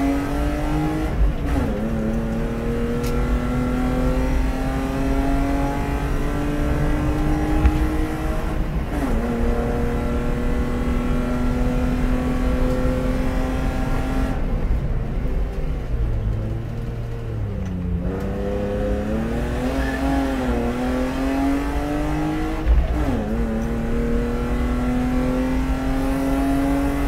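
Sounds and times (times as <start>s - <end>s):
race car engine revving: 0.0s - 14.6s, 16.3s - 27.0s.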